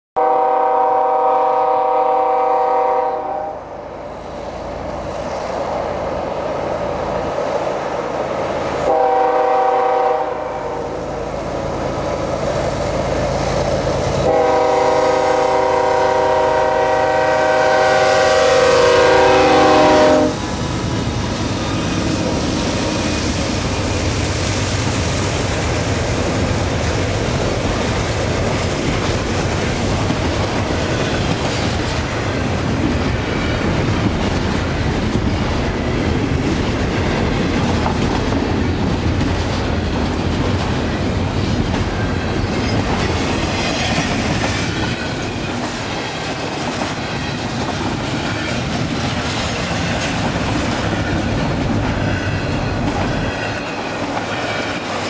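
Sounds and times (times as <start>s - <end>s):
locomotive air horn blasts: 0.2s - 3.7s, 8.9s - 11.0s, 14.2s - 20.5s
train cars rumbling and clattering: 3.7s - 55.0s.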